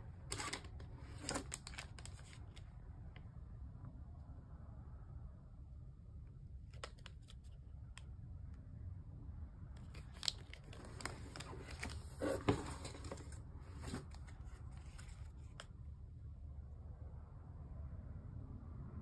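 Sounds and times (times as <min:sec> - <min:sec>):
plastic wrappers crinkling: 0:00.3 - 0:02.6, 0:09.8 - 0:15.6.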